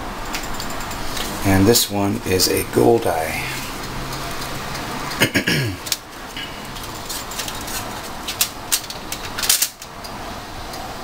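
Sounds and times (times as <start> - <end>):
background hiss: 0.0 - 11.0
rack and foil crinkling: 5.9 - 9.9.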